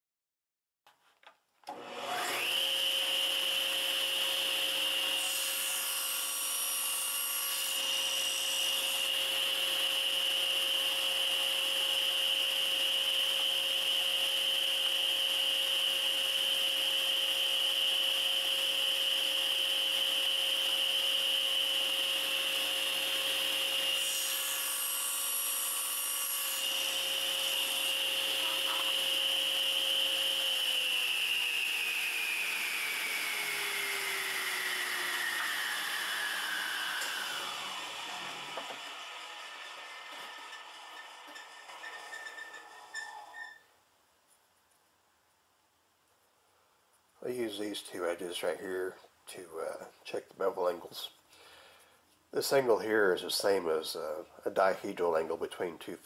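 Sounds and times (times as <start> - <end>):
saw blade cutting wood: 1.7 - 43.6
table saw motor whine: 1.7 - 43.6.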